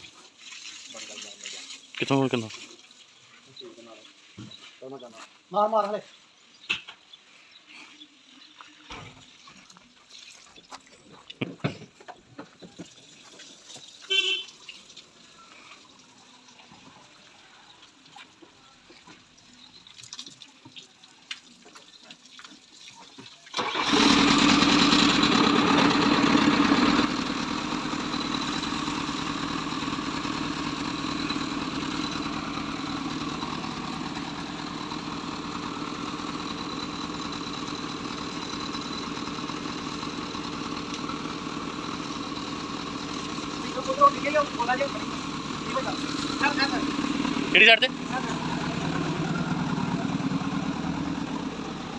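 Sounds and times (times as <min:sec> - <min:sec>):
diesel engine starting and idling: 0:23.5 - 0:51.9.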